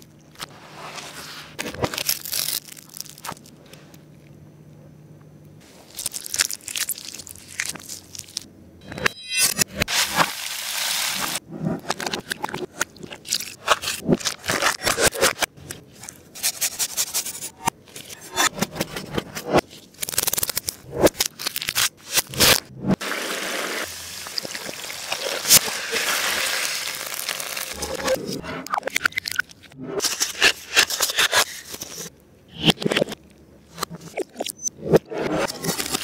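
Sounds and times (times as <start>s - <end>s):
frying sizzle in a pan: 9.9s - 11.4s, 23.0s - 27.8s.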